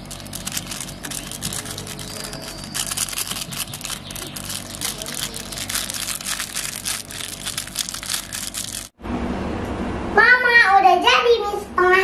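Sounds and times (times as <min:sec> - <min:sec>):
plastic sachets crinkling: 0:00.0 - 0:09.0.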